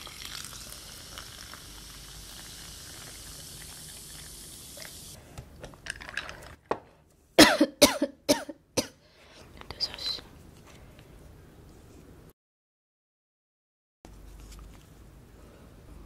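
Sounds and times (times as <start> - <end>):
soda fizzing over ice: 0.0 - 5.2.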